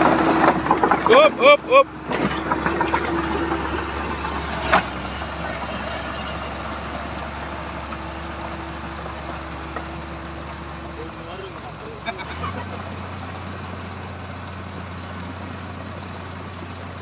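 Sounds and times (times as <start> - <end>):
bulldozer diesel engine running: 0.0 - 17.0.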